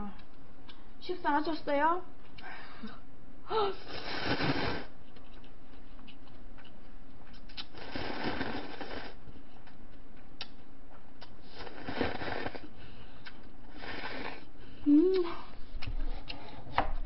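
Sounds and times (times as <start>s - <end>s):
slurping noodles: 3.8s - 5.0s, 7.6s - 9.2s, 11.4s - 12.8s, 13.7s - 14.5s
slurping broth: 3.9s - 4.9s, 7.6s - 9.2s, 11.4s - 12.8s, 13.7s - 14.5s.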